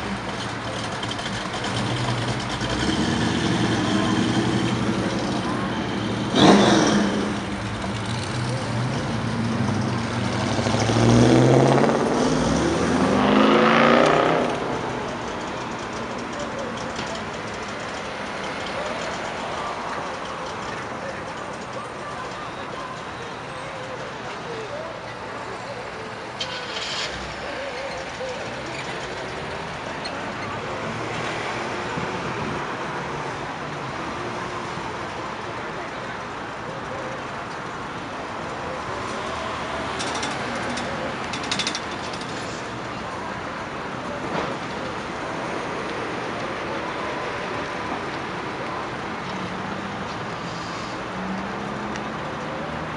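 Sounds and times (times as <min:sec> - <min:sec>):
cars driving slowly: 0:00.0 - 0:52.9
car engines accelerating past: 0:00.3 - 0:16.5.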